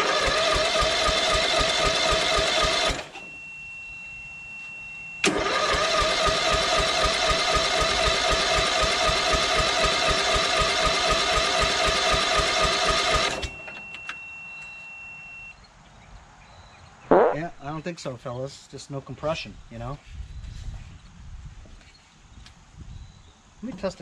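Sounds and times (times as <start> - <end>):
electric starter cranking engine: 0.0 - 3.2, 5.2 - 13.6.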